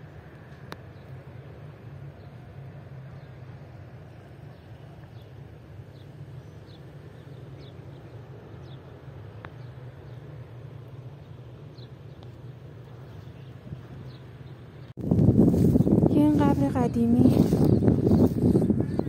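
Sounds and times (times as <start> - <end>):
birds chirping: 11.2 - 14.9
wind rumble on microphone: 11.8 - 19.0.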